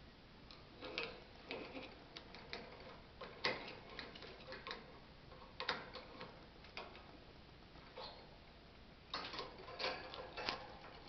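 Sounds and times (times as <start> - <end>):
parrot beak and claws on cage bars: 0.5 - 7.1, 9.1 - 11.0.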